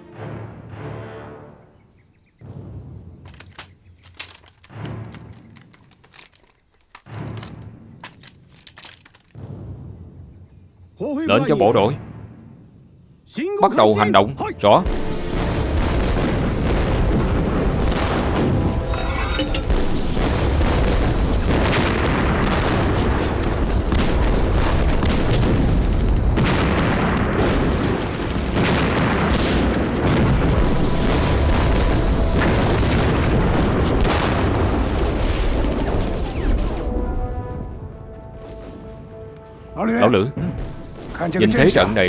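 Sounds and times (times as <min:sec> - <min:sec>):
shell explosions: 0:14.8 - 0:39.5, 0:40.4 - 0:42.0.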